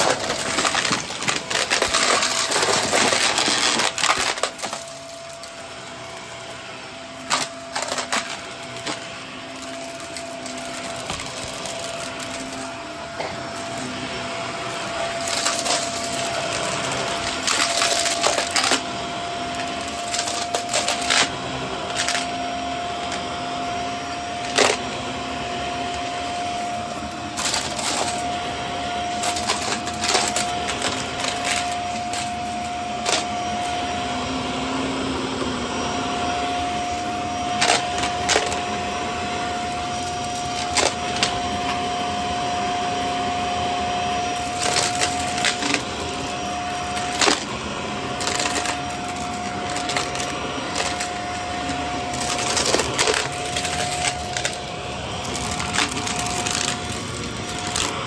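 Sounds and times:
debris rattling through vacuum: 0.0 - 5.8, 7.1 - 18.9, 25.7 - 33.8, 44.0 - 58.0
vacuum cleaner whine: 0.0 - 58.0.

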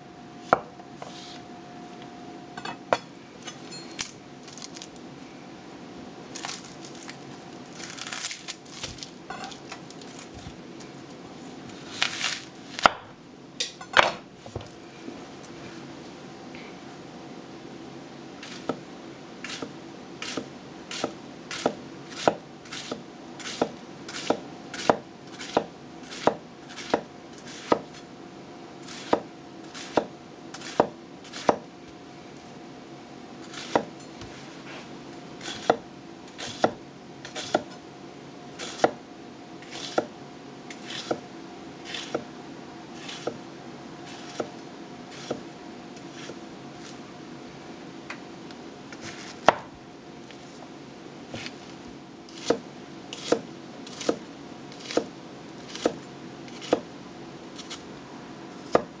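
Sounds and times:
knife slicing onion: 0.4 - 1.4, 11.5 - 13.1, 18.4 - 18.8, 19.4 - 28.1, 28.8 - 31.7, 33.4 - 34.8, 35.4 - 37.8, 38.6 - 39.0, 39.6 - 41.2, 41.8 - 42.3, 42.9 - 43.4, 44.0 - 47.0, 48.9 - 50.6, 51.3 - 56.9, 57.5 - 57.9, 58.5 - 59.0.

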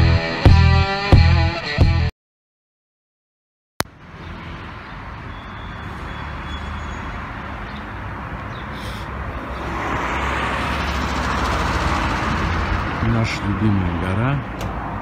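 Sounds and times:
street traffic: 3.8 - 15.0
car passing: 3.9 - 15.0.

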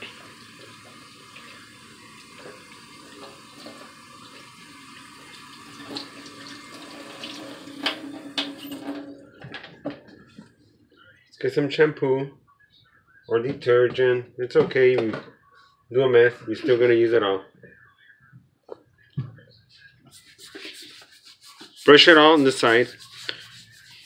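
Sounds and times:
water splashing in steel sink: 0.0 - 9.1
water running from faucet: 0.0 - 9.2, 20.2 - 24.0.

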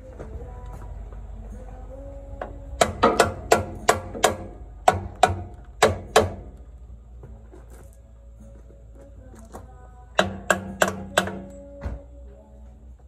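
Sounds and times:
hammer tapping on metal: 2.4 - 6.6, 10.2 - 12.0.

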